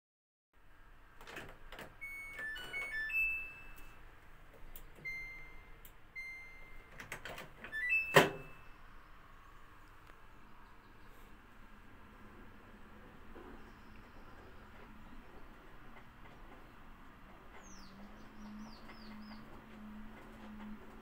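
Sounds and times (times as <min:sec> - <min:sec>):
washing machine beeping tones: 0:02.0 - 0:04.0, 0:05.0 - 0:08.8.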